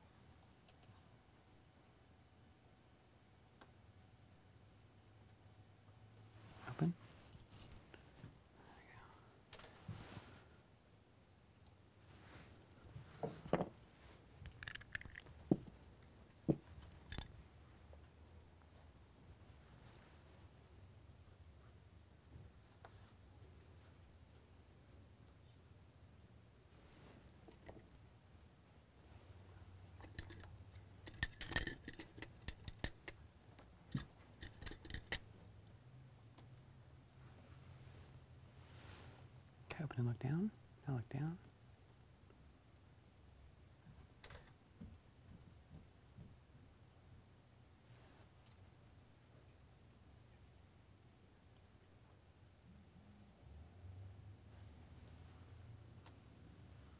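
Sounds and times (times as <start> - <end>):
tweezers and tools clicking: 14.4 - 15.3, 16.8 - 17.3, 30.0 - 33.2, 33.9 - 35.3
makeup containers clicking: 14.4 - 15.6.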